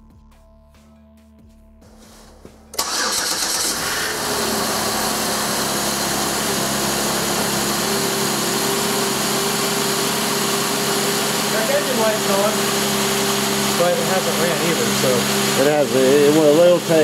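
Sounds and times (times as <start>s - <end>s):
car engine starting and idling: 2.7s - 17.0s.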